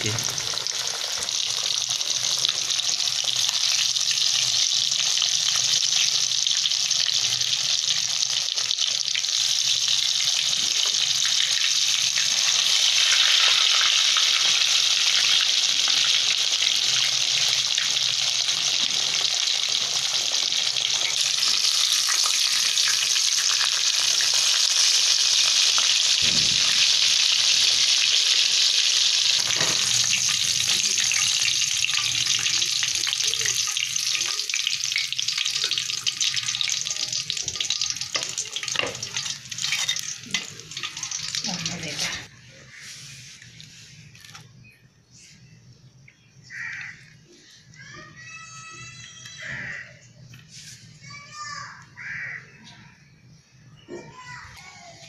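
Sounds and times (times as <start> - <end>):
fish sizzling in hot oil: 0.0 - 44.4
low thump: 26.2 - 26.8.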